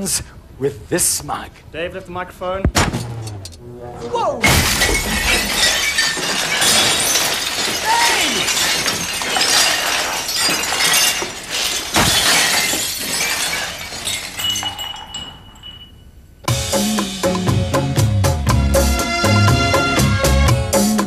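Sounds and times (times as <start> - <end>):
ceramic mugs shattering: 4.4 - 16.1
shards clinking: 4.4 - 16.3.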